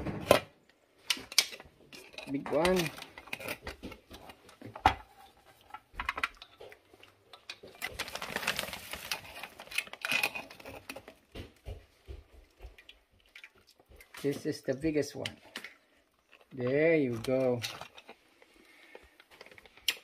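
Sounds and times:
broth splashing and dripping: 12.6 - 14.3.

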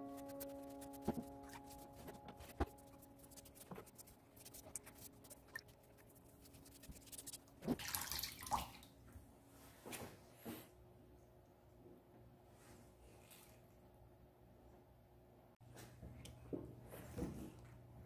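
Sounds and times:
wet sponge rubbing ceramic: 0.0 - 7.8.

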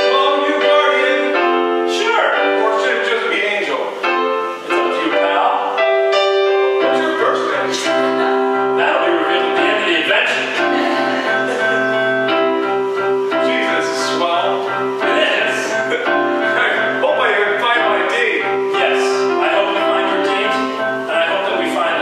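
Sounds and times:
electronic keyboard chords: 0.0 - 22.0
low bass line: 5.7 - 21.7.

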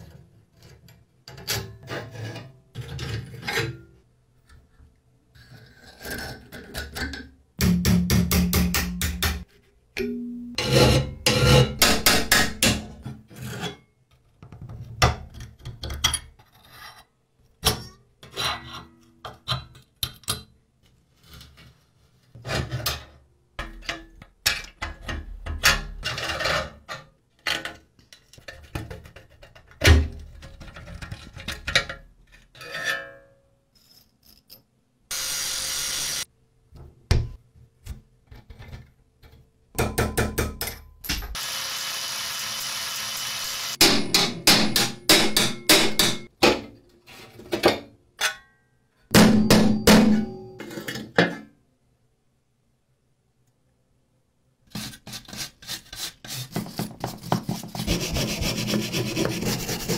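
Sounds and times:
metal scraping on metal: 0.0 - 3.9, 10.6 - 12.1.

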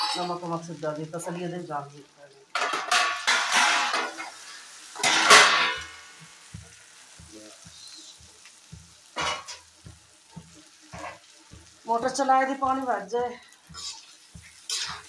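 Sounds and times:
food frying in a pan: 0.0 - 15.0
metal spatula scraping pan: 2.6 - 6.0, 10.9 - 11.3, 13.6 - 15.0.

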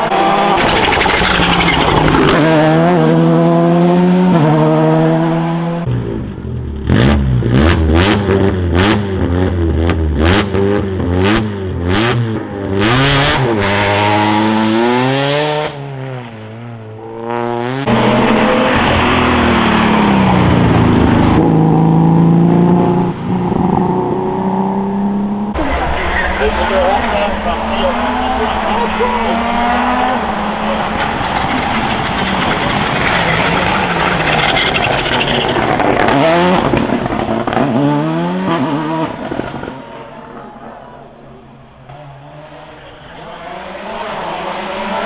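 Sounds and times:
rally car engines at full throttle: 0.0 - 45.0
engine revving blips: 17.3 - 39.2.

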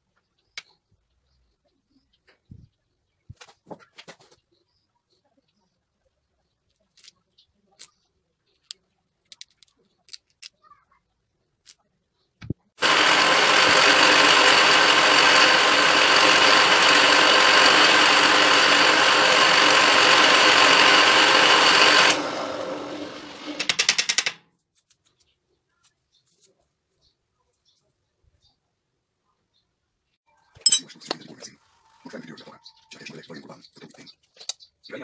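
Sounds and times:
drill press drilling steel: 12.8 - 24.1.

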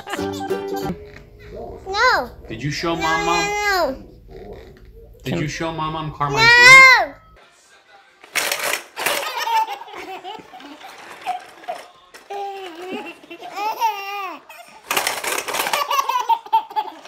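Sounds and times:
baby laughing: 9.0 - 14.8, 15.5 - 17.0.

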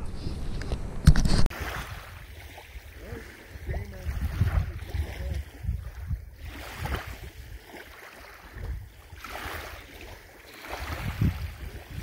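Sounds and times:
wind gusting across microphone: 0.0 - 12.0
small waves lapping: 1.5 - 12.0.

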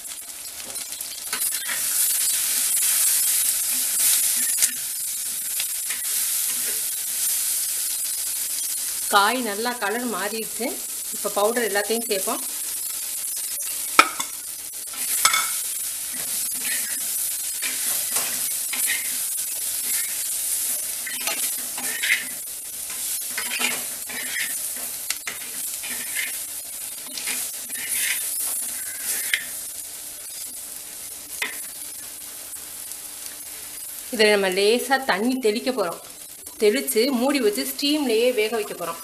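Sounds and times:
oil sizzling: 0.0 - 39.0
metal spatula scraping clay pot: 21.0 - 22.4, 23.3 - 24.6, 25.3 - 26.4, 27.0 - 29.5.

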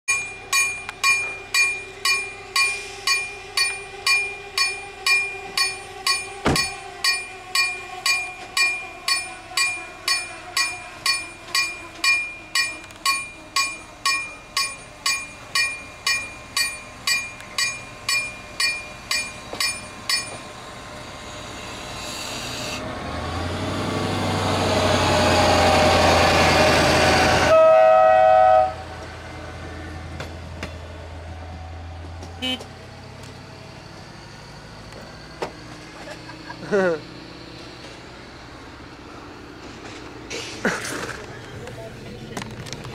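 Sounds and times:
level crossing warning bell: 0.1 - 20.9
train rumbling: 0.1 - 42.9
train horn: 27.0 - 29.1, 32.4 - 32.7.

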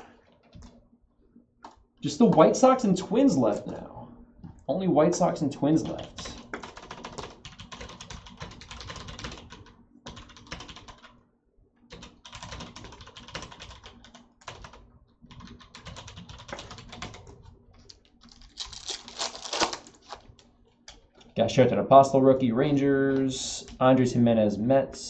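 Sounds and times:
typing on computer keyboard: 5.8 - 11.2, 11.9 - 18.1.

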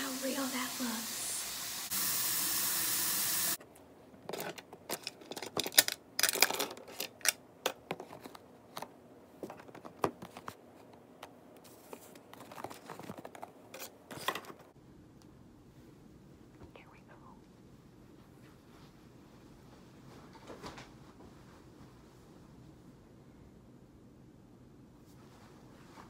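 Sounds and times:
loud steady hiss: 0.0 - 3.6.

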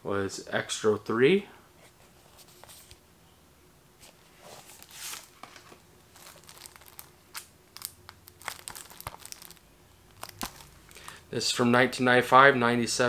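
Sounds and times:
plastic shrink wrap crinkling: 4.6 - 11.2.

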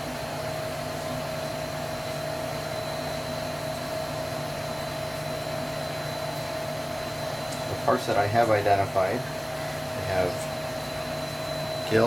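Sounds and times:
faint high whine: 1.6 - 12.0
machine whirring: 4.8 - 12.0.

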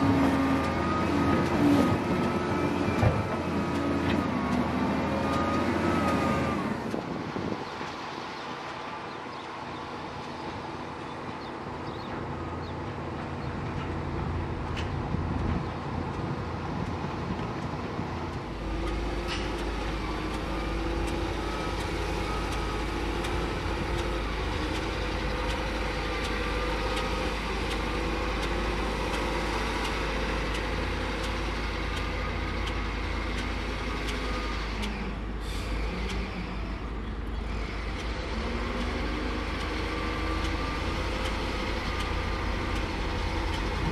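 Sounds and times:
heavy diesel machinery engines: 0.0 - 43.9
deep rumble: 41.6 - 43.9.

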